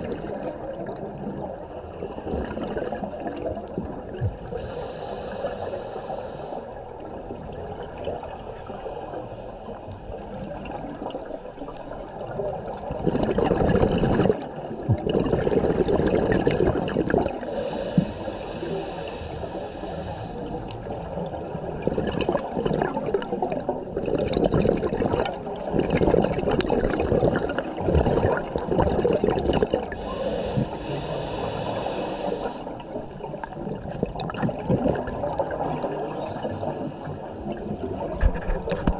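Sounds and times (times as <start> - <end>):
regulator hissing inhales: 4.5 - 6.8, 17.4 - 20.8, 29.9 - 33.3
exhaled bubbles rushing: 10.4 - 17.4, 20.8 - 31.6, 32.8 - 36.8.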